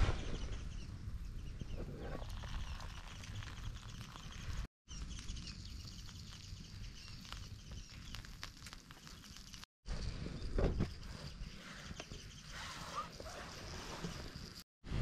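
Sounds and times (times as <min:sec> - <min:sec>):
wood fire crackling and popping: 0:06.2 - 0:09.7.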